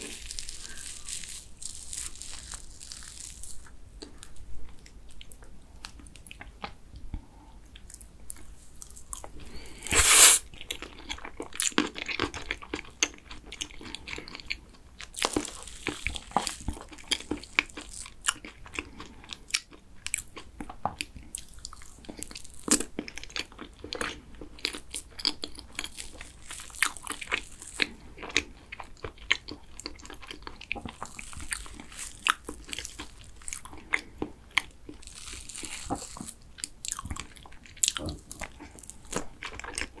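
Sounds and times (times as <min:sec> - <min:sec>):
chewing soft cake: 0:00.0 - 0:40.0.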